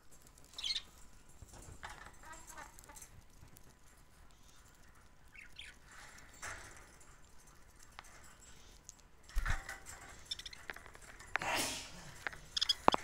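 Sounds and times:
soft bird chatter: 0.0s - 13.0s
budgerigars chirping: 0.5s - 0.9s, 10.2s - 10.8s, 12.5s - 13.0s.

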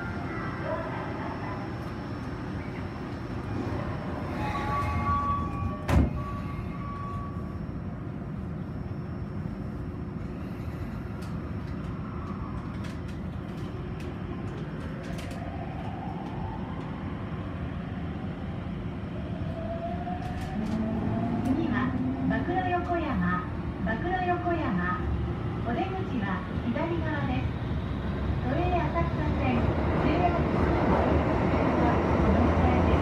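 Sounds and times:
train rumble: 0.0s - 33.0s
train doors shutting with thud: 2.5s - 7.4s.

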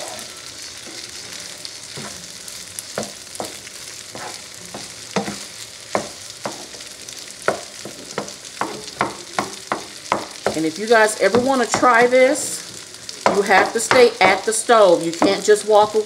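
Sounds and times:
wooden spoon scraping a pan: 0.0s - 2.3s, 3.0s - 6.8s
rice sizzling in a pan: 0.0s - 16.0s.

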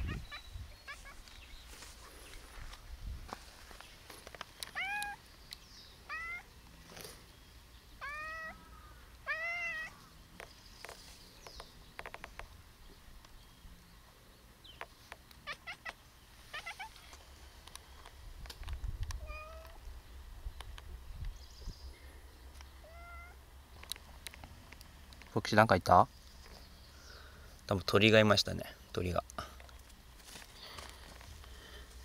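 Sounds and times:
cat meowing: 4.7s - 5.2s, 6.1s - 6.5s, 8.0s - 8.6s, 9.2s - 10.0s, 19.2s - 19.8s, 22.8s - 23.4s.

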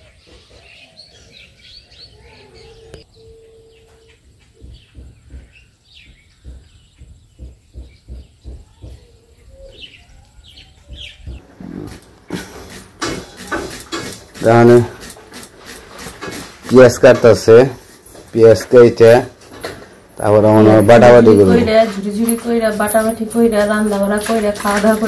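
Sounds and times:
small birds chirping: 0.0s - 11.4s.

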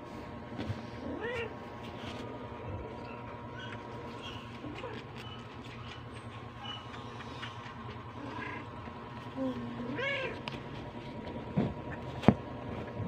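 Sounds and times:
cat purring: 7.3s - 11.2s.

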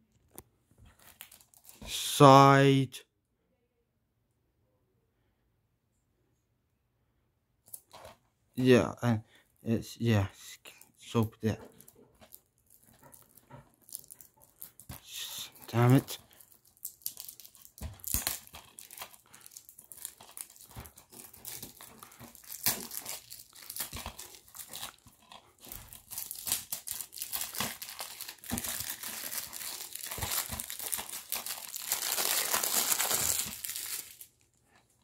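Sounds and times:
plastic wrap crinkling and tearing: 0.9s - 2.2s, 10.7s - 35.0s.

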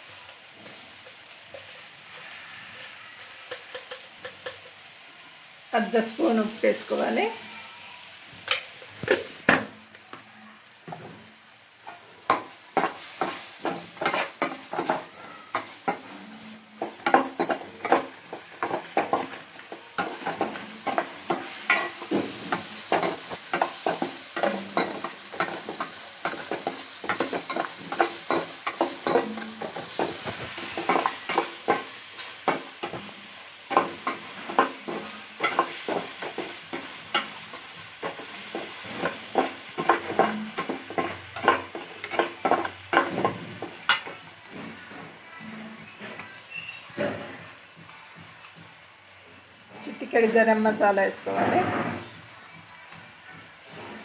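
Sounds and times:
food sizzling in oil: 0.0s - 54.0s
metal spoon scraping pan: 11.9s - 47.5s, 51.2s - 52.2s
high hiss: 12.0s - 50.9s.

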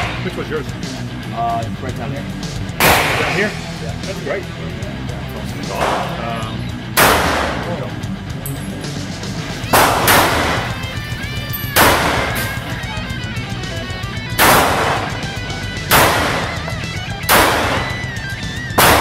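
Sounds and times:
guitar music: 0.0s - 19.0s
pistol shots echoing: 2.8s - 3.6s, 7.0s - 7.8s, 9.7s - 12.8s, 14.3s - 19.0s.

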